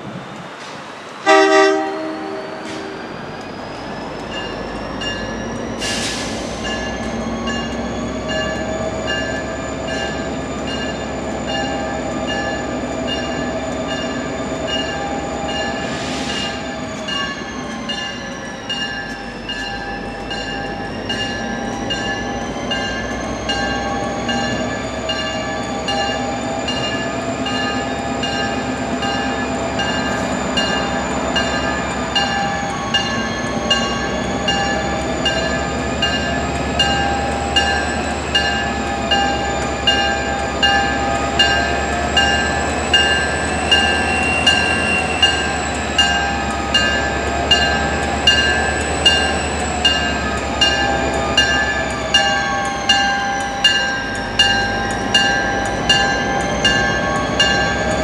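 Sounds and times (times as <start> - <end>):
diesel locomotive rumble: 0.0 - 58.0
train wheels squealing: 2.1 - 58.0
short air hisses: 5.8 - 6.6.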